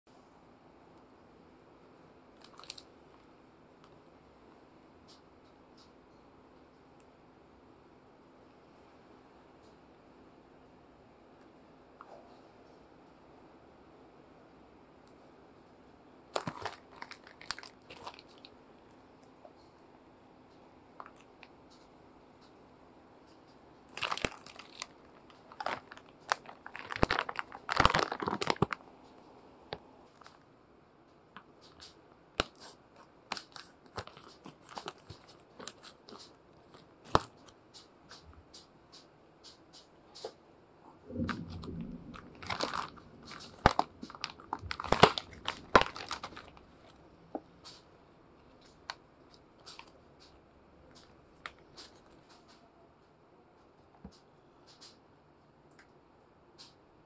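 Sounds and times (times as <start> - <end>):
plastic bag crinkling and tearing: 2.4 - 2.9, 16.3 - 18.9, 23.9 - 28.8, 32.4 - 37.5, 41.1 - 47.0.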